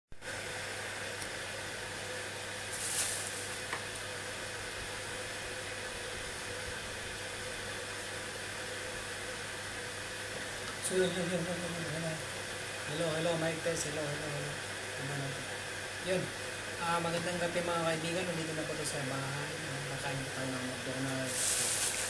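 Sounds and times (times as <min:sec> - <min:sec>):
steady hiss with low hum: 0:00.2 - 0:22.0
rustle: 0:02.7 - 0:03.8, 0:21.3 - 0:22.0.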